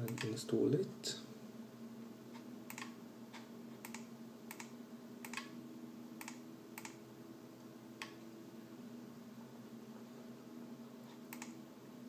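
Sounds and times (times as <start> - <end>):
computer mouse clicks: 0.0 - 0.4, 2.4 - 5.6, 6.2 - 7.0, 8.0 - 8.2, 11.1 - 11.6
steady low hum: 0.0 - 12.0.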